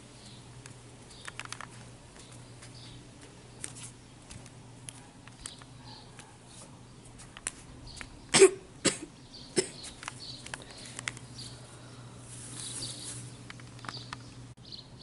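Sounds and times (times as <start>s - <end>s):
girl coughing: 8.3s - 9.8s.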